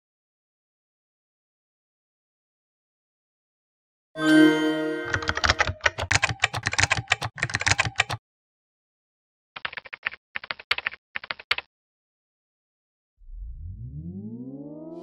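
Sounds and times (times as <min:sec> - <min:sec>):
short electronic tone: 0:04.2 - 0:05.7
computer keyboard typing: 0:05.0 - 0:08.2, 0:09.6 - 0:11.7.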